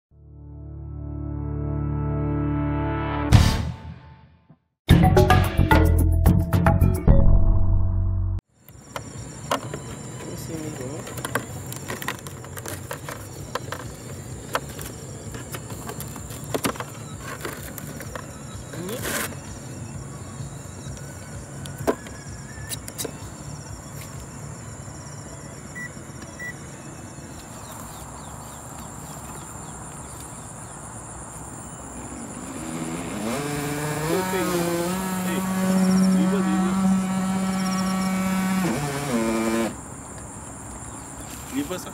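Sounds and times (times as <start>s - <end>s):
electric motor whining: 32.4s - 39.8s.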